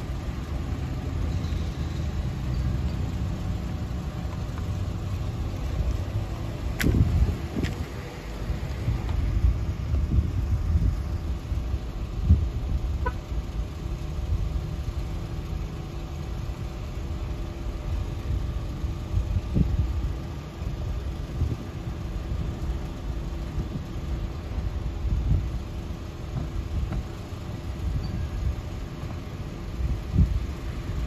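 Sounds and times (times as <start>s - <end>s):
faint engine hum: 0.0s - 31.0s
wind buffeting microphone: 6.7s - 13.0s.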